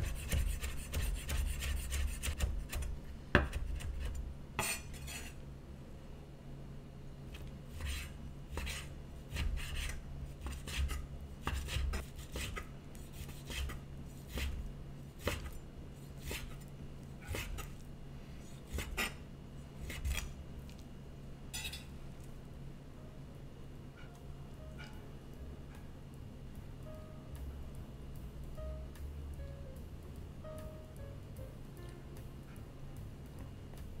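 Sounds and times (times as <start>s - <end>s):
knife slicing meat on wooden board: 0.0s - 5.3s, 7.7s - 14.6s, 15.2s - 15.6s, 16.2s - 16.6s, 19.8s - 20.3s.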